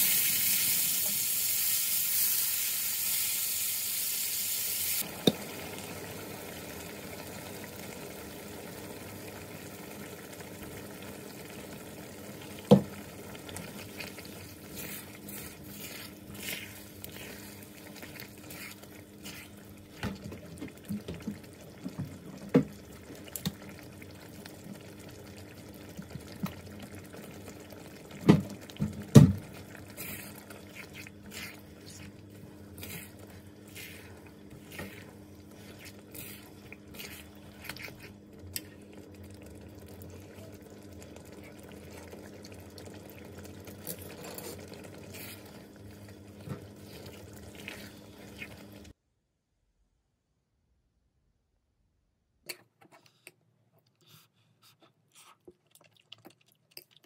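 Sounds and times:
spatula stirring sauce in wok: 12.6s - 22.0s, 29.4s - 40.6s, 41.2s - 48.9s.

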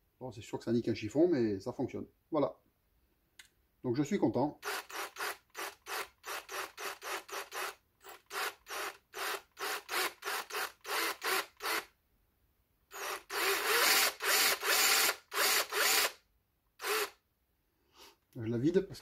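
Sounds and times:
cordless drill motor whine: 4.6s - 11.9s, 12.9s - 16.2s, 16.8s - 17.2s.

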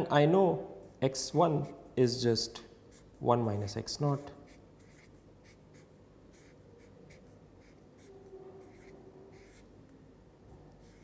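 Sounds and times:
marker scratching on paper: 2.9s - 3.2s, 4.3s - 9.8s, 10.7s - 11.0s.

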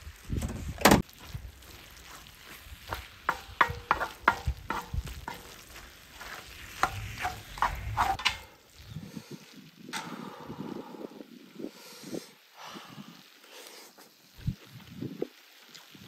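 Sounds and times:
rice sizzling: 0.0s - 16.0s
wooden spatula scraping a griddle: 1.7s - 8.4s.

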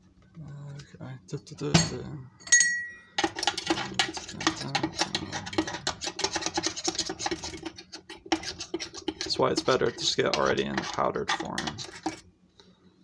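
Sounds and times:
metal spoon scraping metal bowl: 3.1s - 12.2s.

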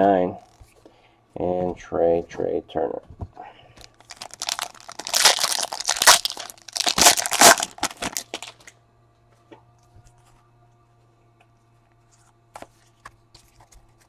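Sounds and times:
foil wrapper crinkling and tearing: 3.9s - 8.7s.

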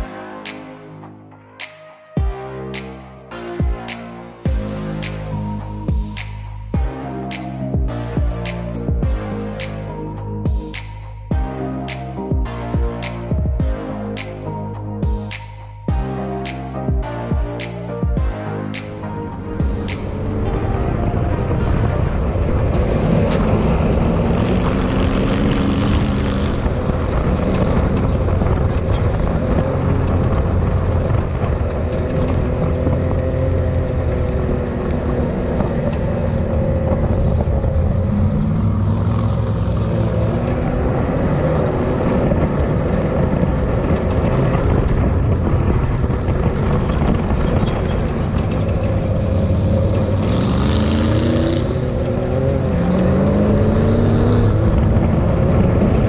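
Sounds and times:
buggy engine droning and revving: 2.2s - 56.0s.

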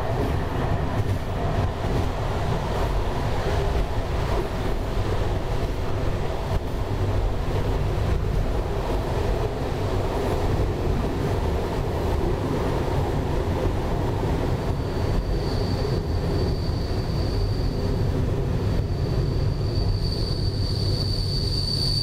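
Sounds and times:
train rumbling on track: 0.0s - 22.0s
thin high squeal: 19.5s - 22.0s.

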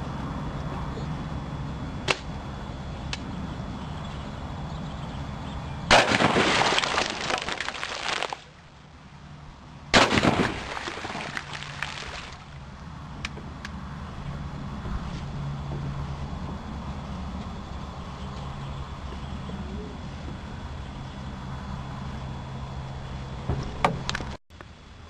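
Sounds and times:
shotgun shots: 5.9s - 6.7s, 10.0s - 10.7s.

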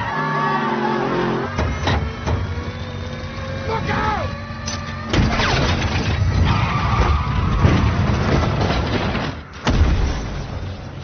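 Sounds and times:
tires skidding: 0.0s - 2.2s, 5.4s - 8.6s
car engine: 0.0s - 9.6s.

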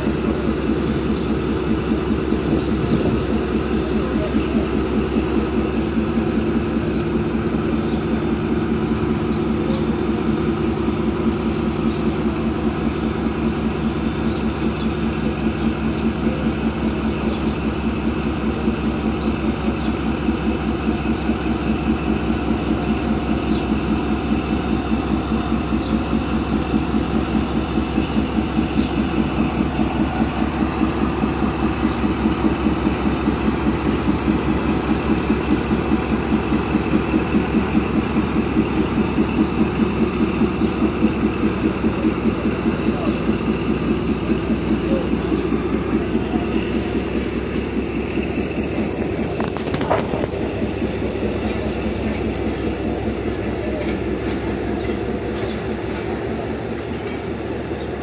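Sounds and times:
locomotive engine idling: 0.0s - 58.0s.

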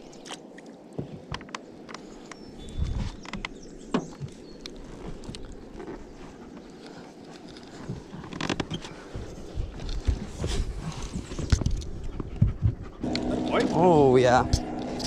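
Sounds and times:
knocks and clicks in boat: 1.0s - 4.4s.

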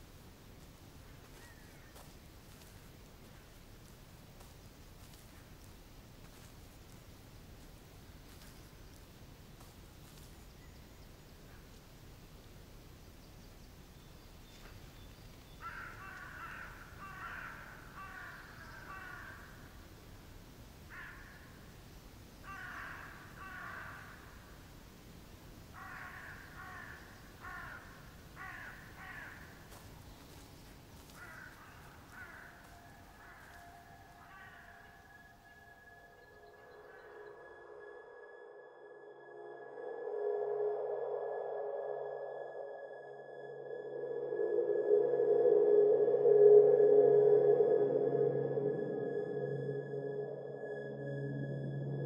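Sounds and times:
crows cawing: 15.6s - 19.8s, 20.9s - 21.7s, 22.4s - 24.6s, 25.7s - 37.3s.

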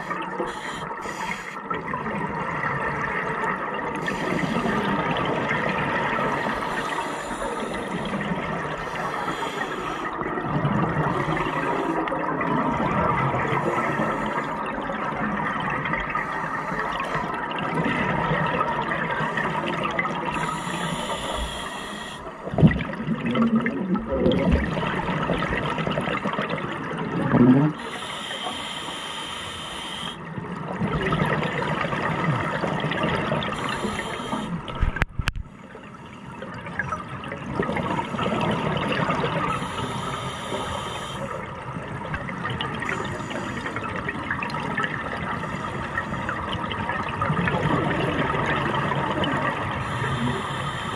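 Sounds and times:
regulator hiss on inhale: 0.0s - 1.7s, 6.3s - 10.3s, 11.0s - 12.1s, 13.5s - 14.6s, 20.4s - 22.5s, 27.8s - 30.3s, 33.6s - 34.7s, 39.5s - 41.5s, 42.8s - 44.0s, 49.7s - 50.9s
gurgling exhaled bubbles: 1.6s - 21.7s, 22.4s - 28.2s, 30.2s - 40.6s, 41.3s - 50.9s.

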